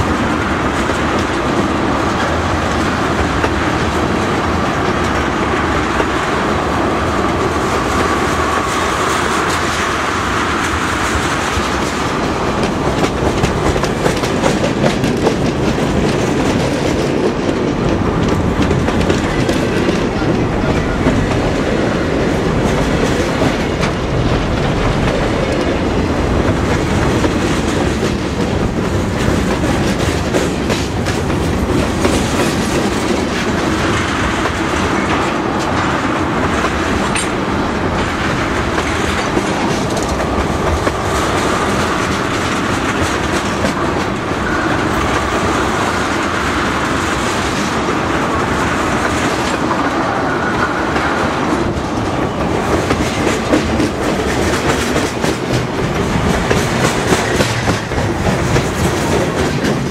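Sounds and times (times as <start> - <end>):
train wheels clacking over rail joints: 0.0 - 59.9.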